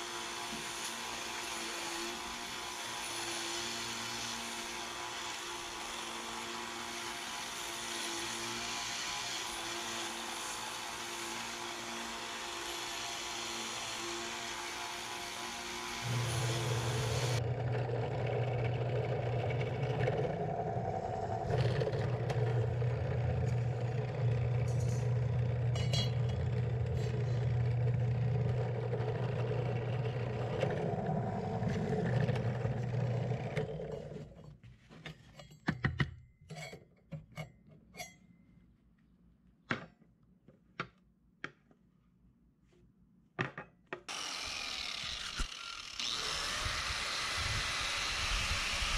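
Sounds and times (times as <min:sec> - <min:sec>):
belt sander grinding metal: 0:00.0 - 0:34.4, 0:44.1 - 0:48.9
drill press motor humming: 0:14.2 - 0:34.2, 0:44.1 - 0:48.9.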